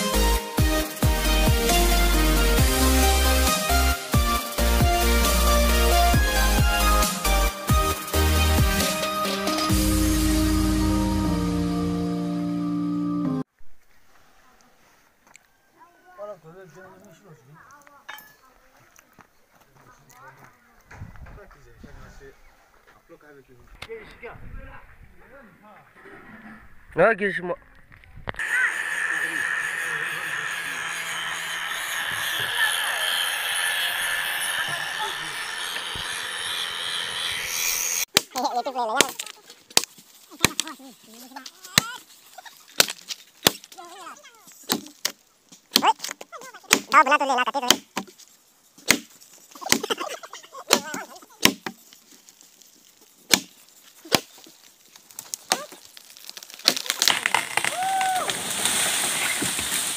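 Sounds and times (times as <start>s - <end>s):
outdoor background hiss: 39.3s - 55.8s
blade chopping into tree trunk: 42.8s - 43.8s, 44.6s - 47.0s, 47.7s - 48.1s, 48.8s - 50.0s, 50.7s - 51.8s, 53.2s - 54.5s, 56.3s - 59.9s.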